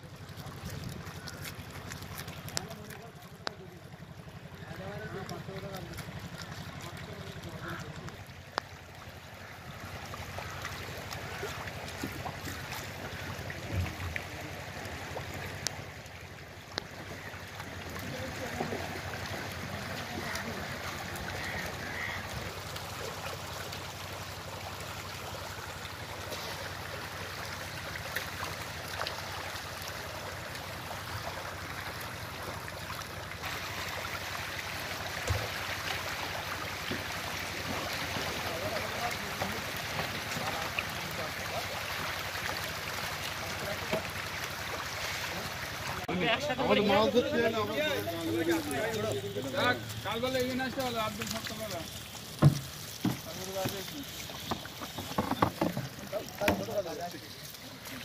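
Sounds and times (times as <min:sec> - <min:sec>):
water flowing: 0:00.0 - 0:58.0
water pump motor humming: 0:17.8 - 0:57.1.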